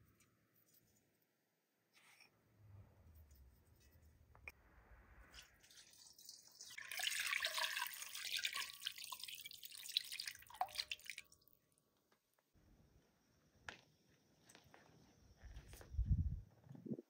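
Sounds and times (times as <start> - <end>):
liquid pouring into a pot: 5.3 - 11.5
liquid dripping: 5.4 - 11.6.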